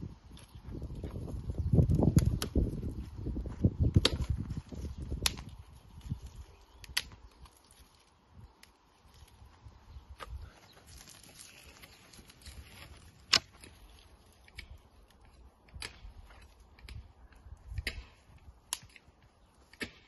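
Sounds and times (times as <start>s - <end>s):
twigs cracking: 0.3s - 20.0s
branch snapping: 5.1s - 9.4s, 10.2s - 16.1s, 18.7s - 19.1s.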